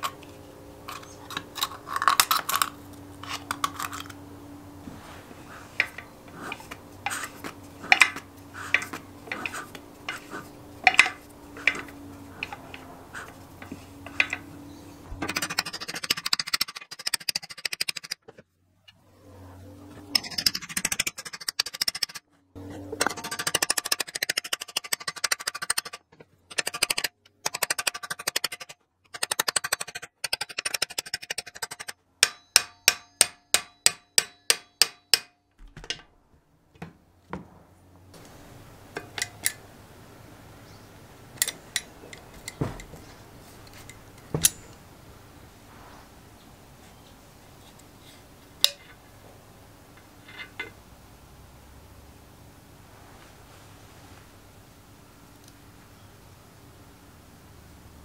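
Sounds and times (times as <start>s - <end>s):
hammer tapping on metal: 5.8s - 14.5s, 31.8s - 36.0s.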